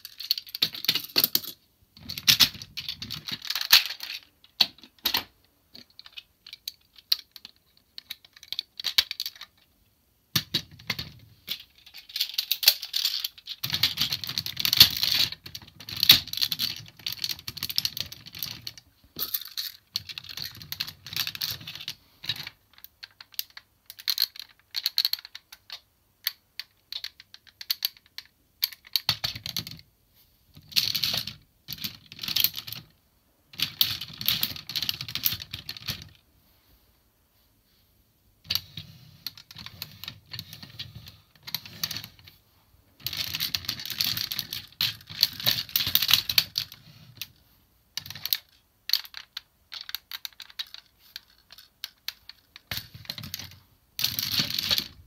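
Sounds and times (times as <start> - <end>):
plastic toy parts clicking: 0.0 - 9.7, 10.3 - 29.8, 33.6 - 36.2, 43.0 - 47.4, 48.0 - 55.0.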